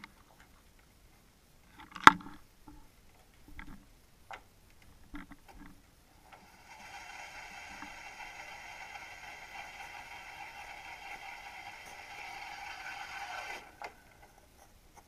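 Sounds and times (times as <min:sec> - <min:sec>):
steady multi-pitched hum: 0:05.9 - 0:15.0.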